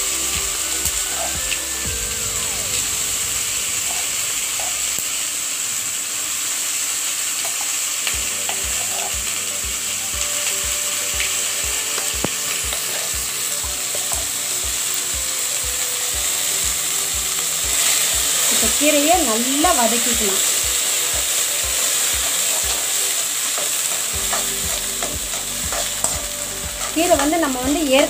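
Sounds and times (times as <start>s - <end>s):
paste sizzling in hot oil: 0.0s - 28.0s.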